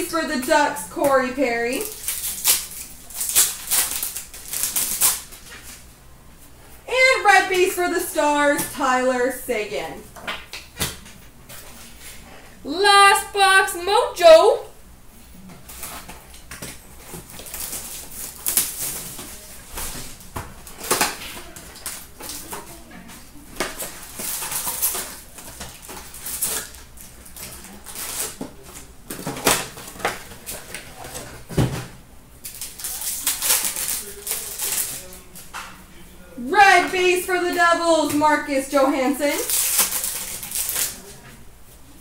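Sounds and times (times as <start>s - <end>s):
packs rustling and tearing: 1.6s - 5.8s, 15.7s - 22.8s, 23.6s - 31.4s, 32.4s - 35.4s, 39.2s - 41.2s.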